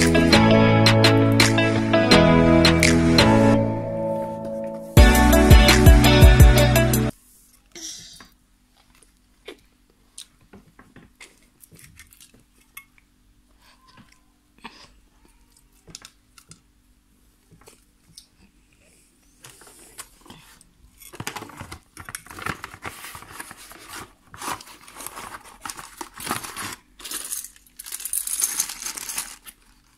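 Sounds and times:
cardboard box rustling and scraping: 22.4s - 26.8s.

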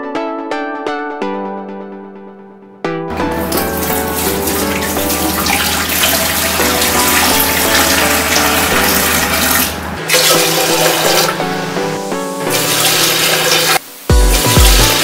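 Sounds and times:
music: 0.0s - 15.0s
water pouring into a glass tank: 3.2s - 11.7s, 12.5s - 15.0s.

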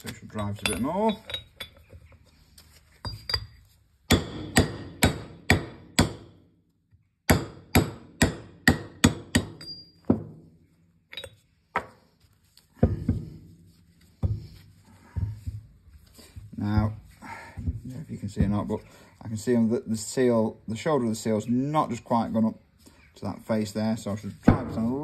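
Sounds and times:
hammer striking steel: 4.1s - 6.4s, 7.3s - 10.2s.

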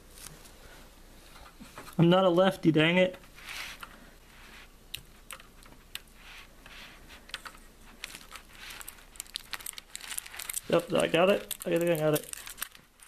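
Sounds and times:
plastic film rustling: 5.2s - 13.0s.

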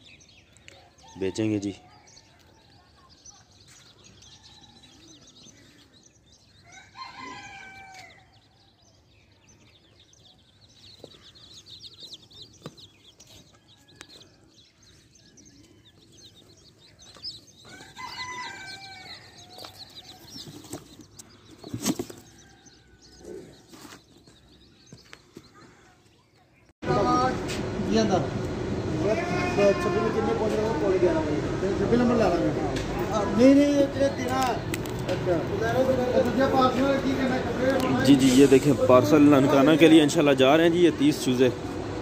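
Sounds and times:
chicks peeping: 0.0s - 42.0s
rooster crowing: 4.2s - 5.4s, 6.6s - 8.7s, 13.4s - 16.5s, 17.6s - 20.6s, 22.2s - 23.6s.

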